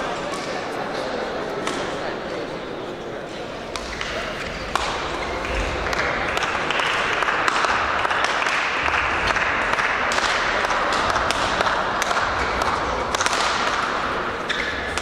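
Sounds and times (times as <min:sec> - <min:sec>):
distant voices and movement: 0:00.0 - 0:15.0
racket hits on shuttlecocks: 0:00.1 - 0:02.0, 0:03.6 - 0:15.0.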